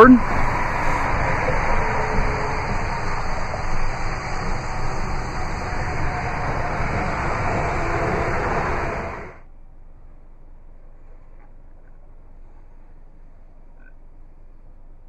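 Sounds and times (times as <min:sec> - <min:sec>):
road traffic: 0:00.0 - 0:09.4
fluttering low rumble: 0:00.0 - 0:15.0
wind: 0:00.0 - 0:15.0.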